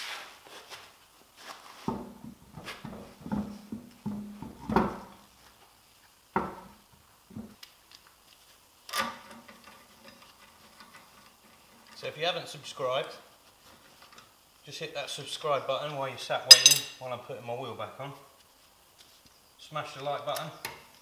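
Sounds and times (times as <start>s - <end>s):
tools being handled: 16.5s - 17.0s.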